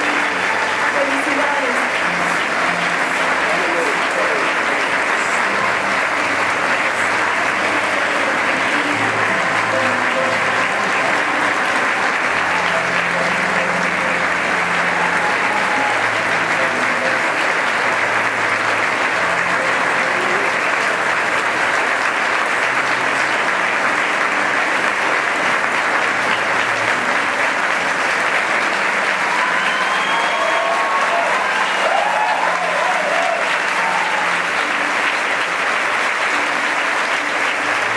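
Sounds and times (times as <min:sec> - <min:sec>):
large audience applauding: 0:00.0 - 0:37.9.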